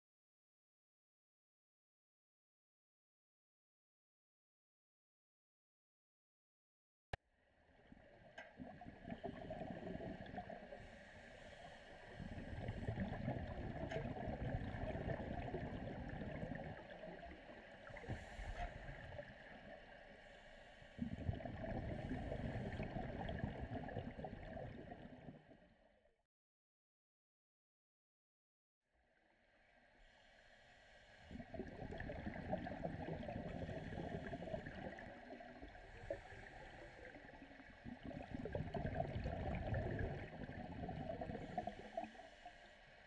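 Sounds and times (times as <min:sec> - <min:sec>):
underwater air bubbles gurgling: 0:08.0 - 0:25.7, 0:31.2 - 0:43.0.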